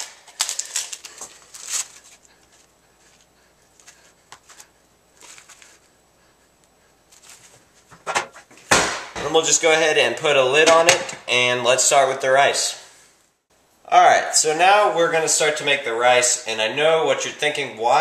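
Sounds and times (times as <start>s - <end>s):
plastic tray crinkling: 0.0s - 2.7s.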